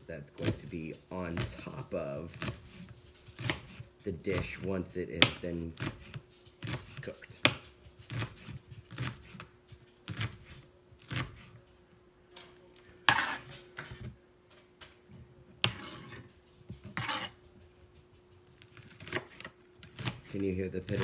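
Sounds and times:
knife chopping on plastic board: 0.4 - 0.7, 1.3 - 9.5, 10.1 - 11.6, 13.1 - 14.2, 15.6 - 16.2, 16.9 - 17.4, 18.6 - 21.0.

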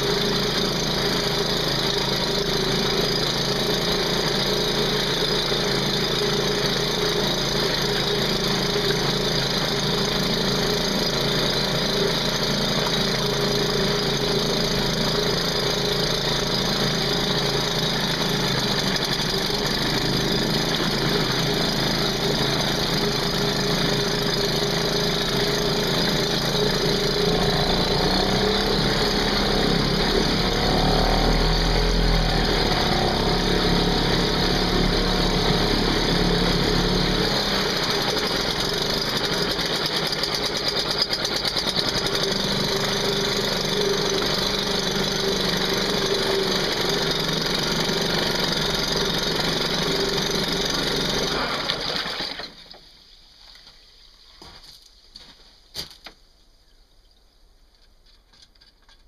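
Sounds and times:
outboard motor running: 0.0 - 52.6
propeller churning water: 37.4 - 52.5.

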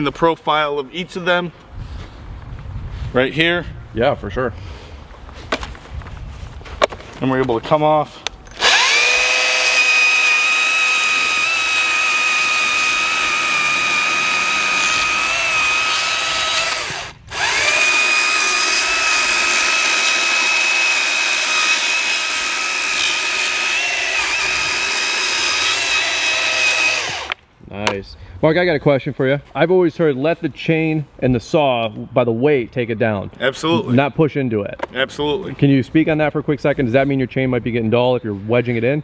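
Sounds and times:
chainsaw cutting a log: 8.6 - 27.4.

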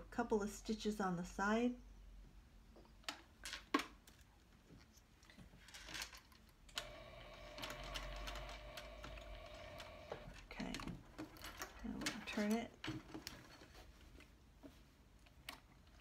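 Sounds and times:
sewing machine running: 6.7 - 10.8.

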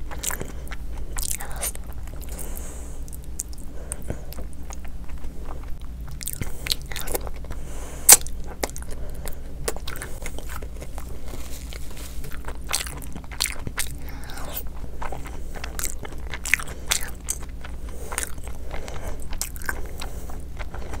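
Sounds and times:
food crunching: 0.0 - 21.0
person chewing: 0.0 - 21.0
wet mouth sounds: 0.1 - 3.7.

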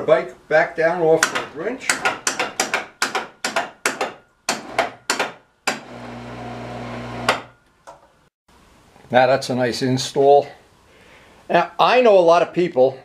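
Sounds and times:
winch motor hum: 5.8 - 7.4.

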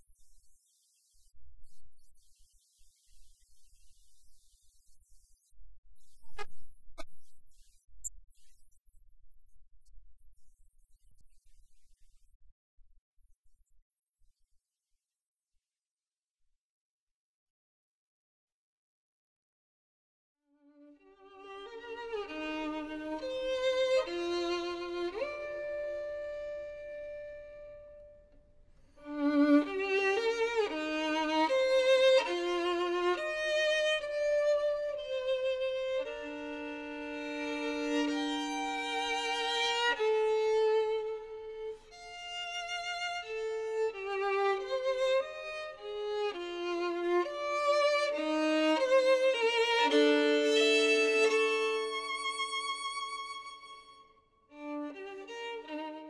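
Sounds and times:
slow solo violin: 20.7 - 28.3, 28.9 - 56.0.

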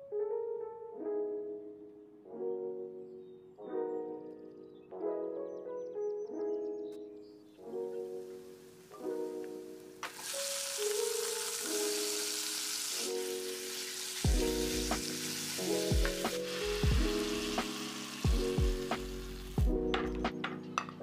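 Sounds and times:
meat sizzling in oil: 10.0 - 19.6.

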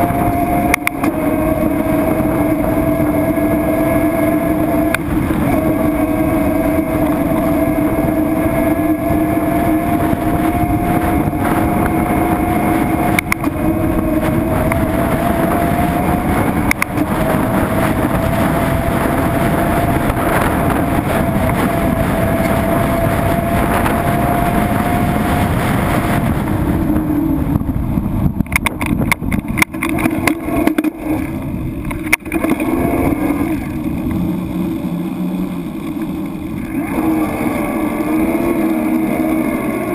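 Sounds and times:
boat motor running: 0.0 - 39.9.

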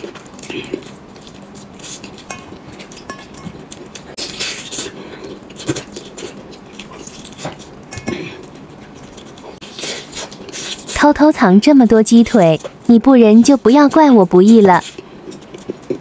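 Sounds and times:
chewing and lip-smacking: 0.0 - 11.0, 14.8 - 16.0.

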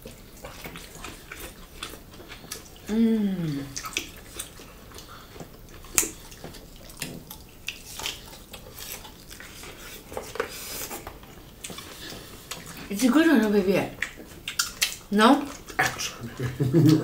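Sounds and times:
person humming: 2.9 - 3.8
chewing mouth clicks and smacks: 3.7 - 12.9, 13.9 - 16.2.

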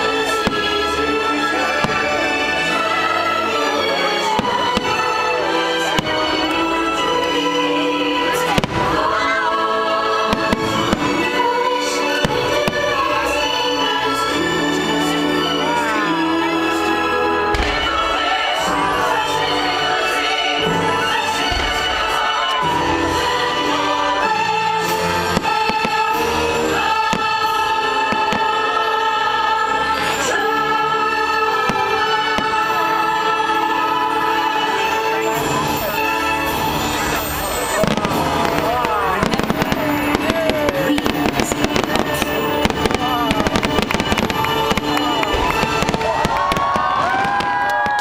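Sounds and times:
fireworks bursting and crackling: 0.0 - 14.4, 17.5 - 29.1, 36.6 - 48.0
choir singing held notes: 0.0 - 48.0
show music: 0.0 - 48.0
firework bursts popping: 37.8 - 48.0.

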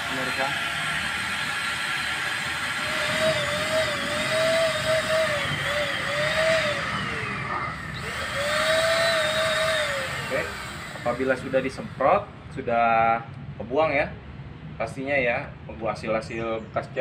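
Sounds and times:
paint spray gun motor whine: 0.0 - 12.3.

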